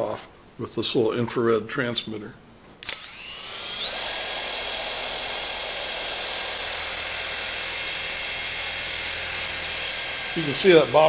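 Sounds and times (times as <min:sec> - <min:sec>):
rotor blades whirring: 0:02.8 - 0:11.0
toy helicopter motor whine: 0:02.8 - 0:11.0.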